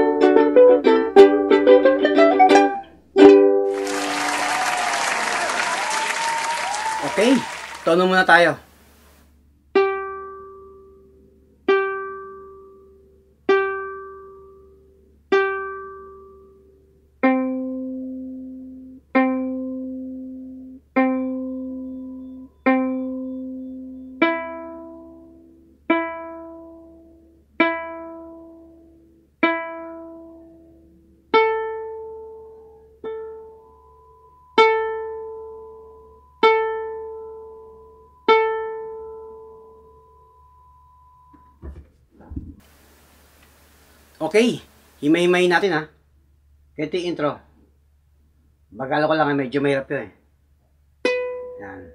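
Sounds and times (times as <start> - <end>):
ukulele strings plucked: 0.0 - 4.0, 9.7 - 11.1, 17.2 - 30.6, 51.0 - 51.6.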